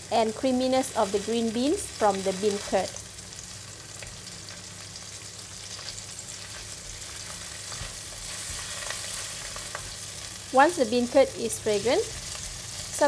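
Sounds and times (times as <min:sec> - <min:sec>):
oil sizzling in a wok: 0:00.0 - 0:13.0
spatula scraping pan: 0:06.5 - 0:10.0.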